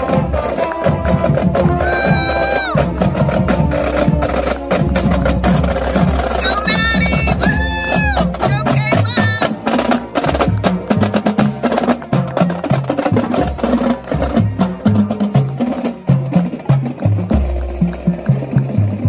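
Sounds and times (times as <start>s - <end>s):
marching bass drums: 0.0s - 19.0s
snare drums: 0.0s - 19.0s.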